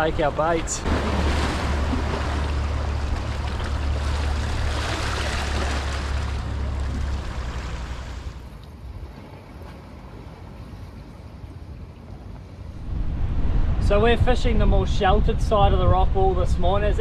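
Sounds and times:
surf against rocks: 0.0s - 8.5s
wind rumbling on microphone: 12.4s - 17.0s.

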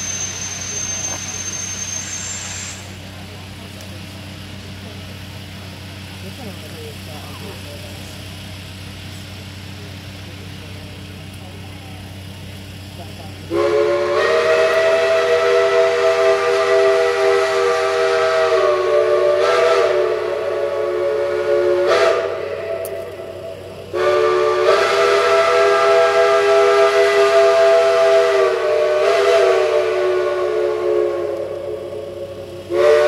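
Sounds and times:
steam locomotive chime whistle: 0.0s - 3.0s, 13.5s - 33.0s.

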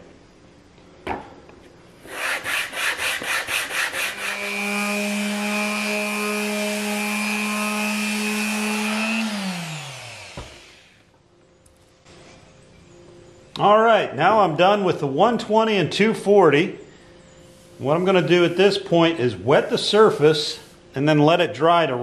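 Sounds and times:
rhythmic rubbing strokes: 2.0s - 9.4s, 17.5s - 21.2s
orbital sander running: 3.9s - 11.0s.

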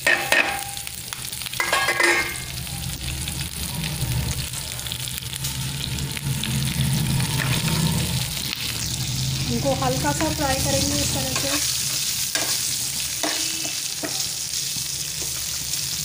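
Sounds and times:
chillies sizzling in hot oil: 0.0s - 16.0s.

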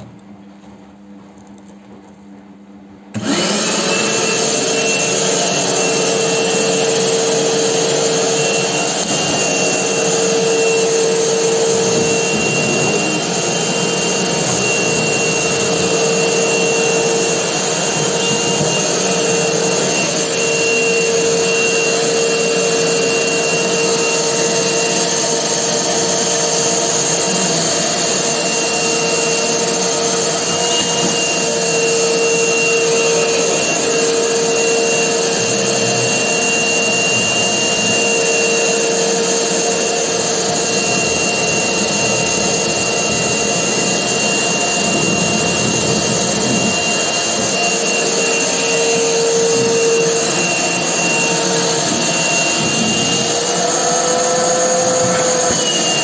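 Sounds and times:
shop vac motor whine: 0.0s - 56.0s
air rushing at vacuum nozzle: 29.2s - 56.0s.

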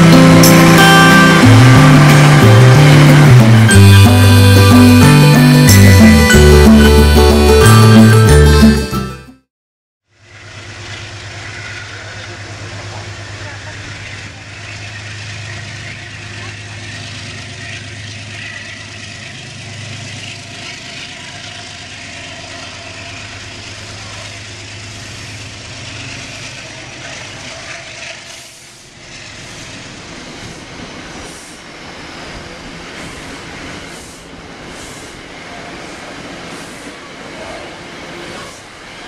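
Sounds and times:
train low hum: 0.0s - 9.0s, 10.1s - 39.0s
short air hisses: 30.4s - 31.6s, 33.1s - 35.3s.

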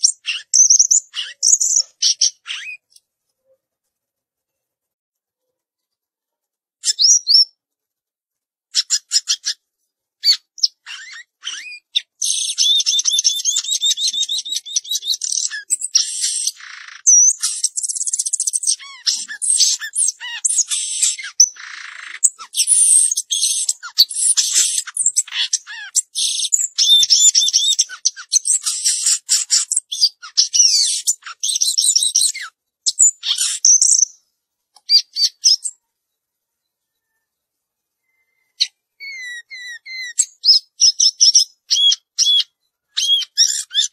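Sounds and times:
songbird whistling and warbling: 0.0s - 3.0s, 6.8s - 7.6s, 8.7s - 9.6s, 10.2s - 34.2s, 34.8s - 35.8s, 38.0s - 43.9s.

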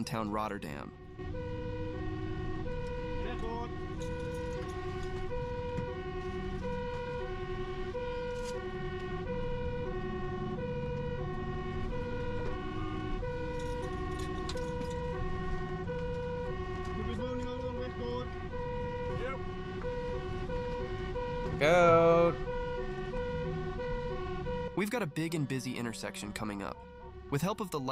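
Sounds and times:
truck engine and road noise: 0.0s - 27.9s
two-tone siren: 0.0s - 27.9s.

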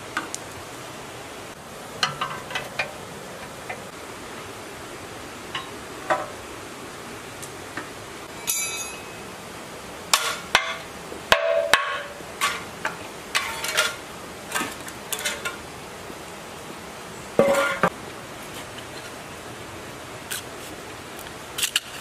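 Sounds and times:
sharp metal knocks and clanks: 2.0s - 2.9s, 8.4s - 9.2s, 10.1s - 12.6s, 17.4s - 18.0s
ringing metal clink: 8.4s - 9.2s.

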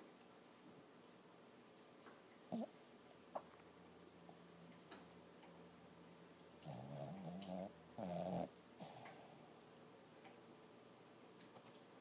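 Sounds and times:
puppy whimpering in sleep: 2.5s - 2.7s, 6.6s - 9.5s
puppy snoring: 2.5s - 2.8s, 6.5s - 9.6s.

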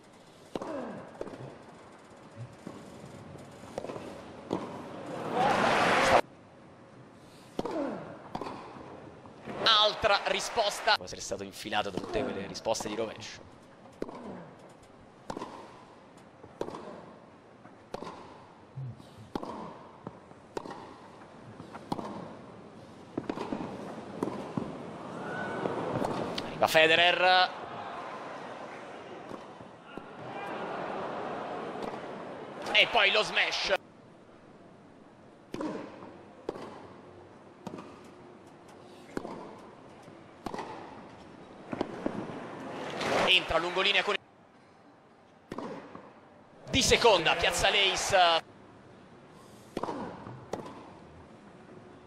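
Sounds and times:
tennis ball bouncing: 0.5s - 1.5s, 3.7s - 4.9s, 7.5s - 8.9s, 11.9s - 13.0s, 13.9s - 14.4s, 15.2s - 17.2s, 17.8s - 18.5s, 19.2s - 22.5s, 23.2s - 25.0s, 25.6s - 26.5s, 29.2s - 30.3s, 31.6s - 33.0s, 35.5s - 37.0s, 37.6s - 38.1s, 39.1s - 42.4s, 45.5s - 46.1s, 49.7s - 51.2s
racquet striking tennis ball: 3.7s - 4.8s, 7.5s - 8.8s, 14.0s - 14.4s, 15.2s - 15.9s, 16.5s - 17.1s, 17.9s - 18.4s, 19.3s - 22.4s, 23.2s - 24.8s, 25.6s - 26.5s, 31.7s - 33.0s, 35.5s - 37.0s, 39.1s - 39.7s, 40.4s - 41.1s, 45.5s - 46.1s, 49.7s - 51.0s.

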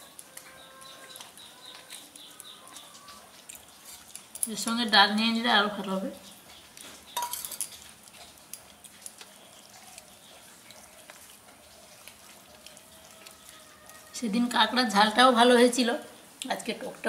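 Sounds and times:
steel bowl clinking on metal plate: 7.2s - 7.8s.

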